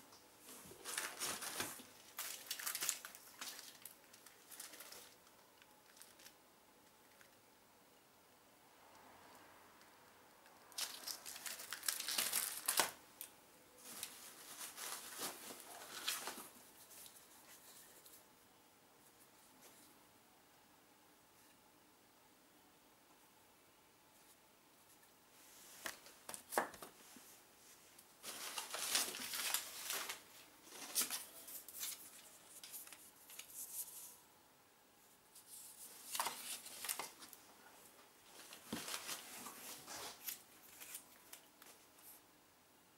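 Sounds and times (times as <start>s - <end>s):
plastic and cardboard packaging rustling: 0.4s - 6.4s, 10.7s - 18.1s, 28.1s - 34.2s, 35.4s - 42.2s
rummaging in cardboard box: 0.8s - 3.8s, 28.2s - 31.2s
plastic shrink-wrap crinkling: 0.8s - 6.4s, 10.7s - 17.1s, 28.2s - 33.6s.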